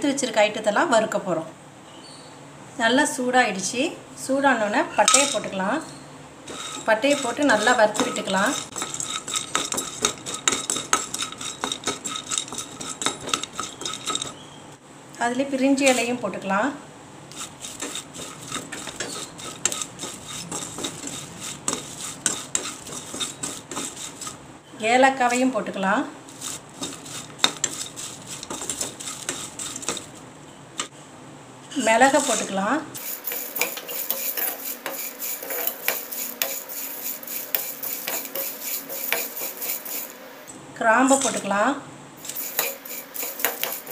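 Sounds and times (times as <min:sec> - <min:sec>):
spatula scraping spices in pan: 0:06.4 - 0:14.4, 0:15.8 - 0:16.2, 0:17.3 - 0:24.4, 0:26.3 - 0:30.2, 0:31.8 - 0:40.4, 0:41.1 - 0:41.4, 0:42.2 - 0:43.9.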